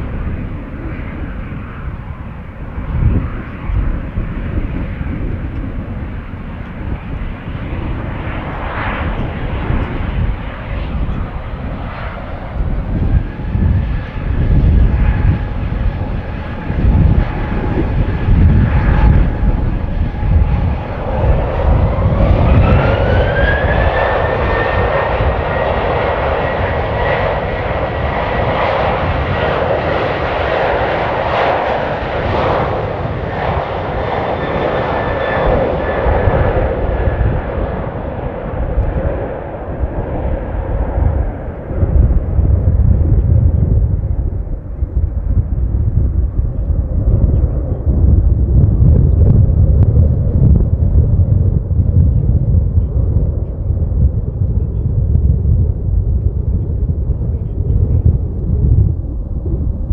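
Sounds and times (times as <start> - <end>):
jet engines whistling and spooling up: 0.0 - 59.9
wind rumbling on microphone: 0.0 - 59.9.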